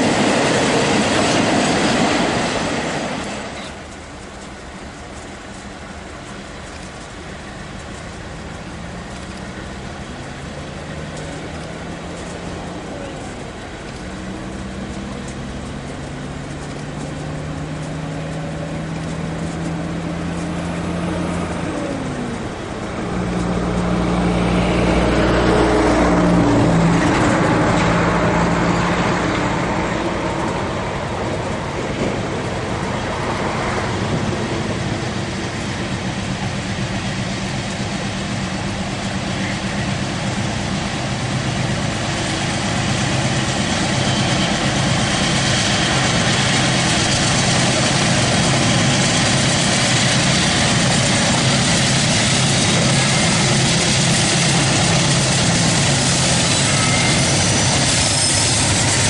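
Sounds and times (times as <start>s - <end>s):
diesel locomotive engines: 0.0s - 59.0s
train wheel and rail noise: 0.0s - 59.0s.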